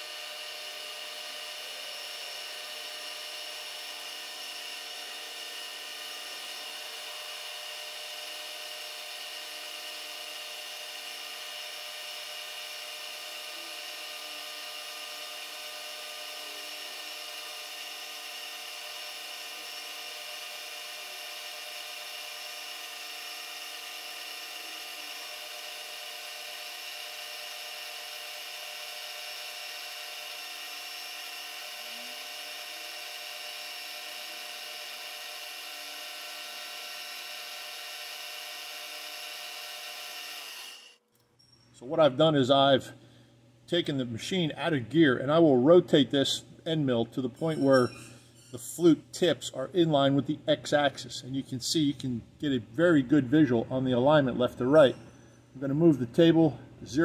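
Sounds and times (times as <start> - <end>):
milling machine whine: 0.0 - 41.0.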